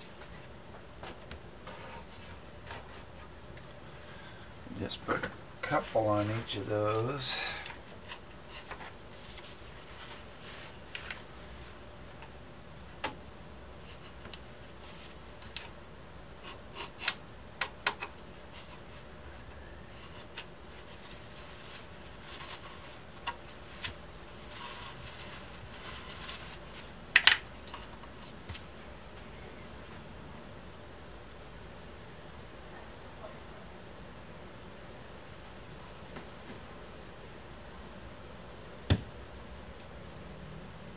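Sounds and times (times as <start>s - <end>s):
rustling: 0.0s - 13.1s, 13.7s - 15.8s, 18.2s - 30.0s.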